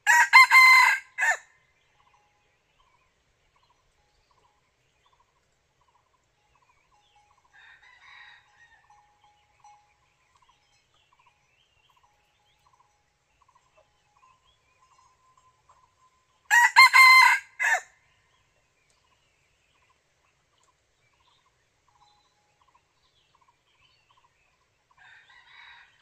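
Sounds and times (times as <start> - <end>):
junglefowl crowing: 0.0 - 1.5, 16.5 - 17.9
faint chirping: 8.6 - 16.5.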